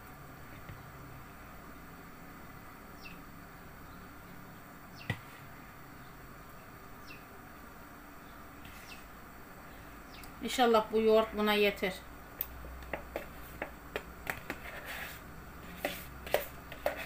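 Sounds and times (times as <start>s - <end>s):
spoon scraping plastic tub: 14.3s - 17.0s.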